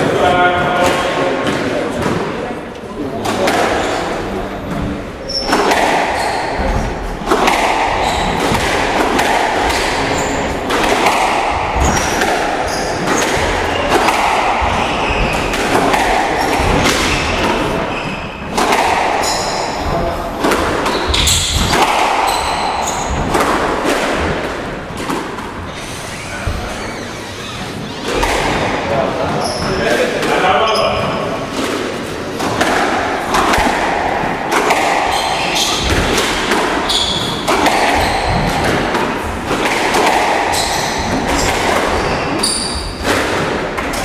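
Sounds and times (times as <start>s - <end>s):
squash ball hitting rackets and walls: 0.0s - 26.9s, 27.6s - 44.0s
shoes squeaking on court floor: 4.7s - 8.5s, 9.6s - 10.6s, 11.5s - 18.6s, 19.2s - 28.6s, 29.3s - 30.0s, 30.6s - 31.3s, 35.1s - 36.2s, 36.8s - 38.7s, 40.4s - 43.0s.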